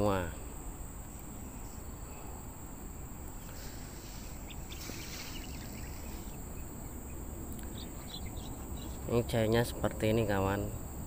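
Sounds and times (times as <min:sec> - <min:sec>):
insects droning: 0:00.0 - 0:11.0
faint rustles: 0:01.0 - 0:09.2.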